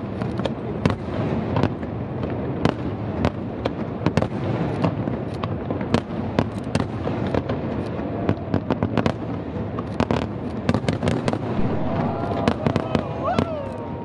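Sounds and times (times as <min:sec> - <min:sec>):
firework shell bursts: 0:11.2 - 0:13.2
steady rumble: 0:11.4 - 0:12.6.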